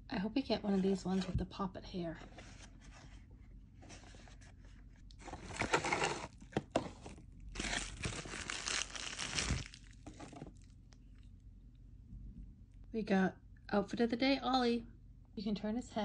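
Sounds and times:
plastic bag crinkling and tearing: 5.2s - 10.7s
cardboard box ripping: 5.3s - 6.4s, 7.6s - 9.9s.

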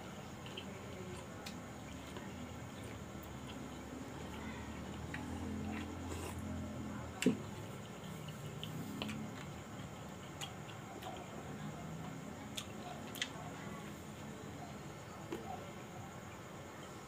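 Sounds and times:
person chewing food: 0.3s - 6.6s, 7.6s - 11.3s, 12.5s - 13.4s.

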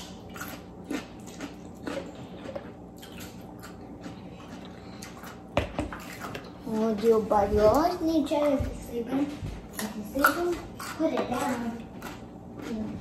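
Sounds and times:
soft chewing and lip smacks: 0.0s - 6.6s.

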